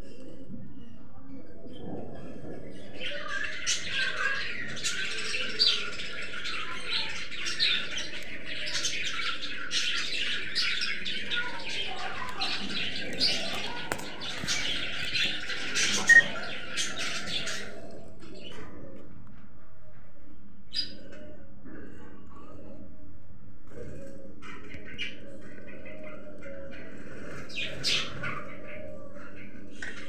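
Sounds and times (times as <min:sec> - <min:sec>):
budgerigars chattering: 0:03.6 - 0:17.9.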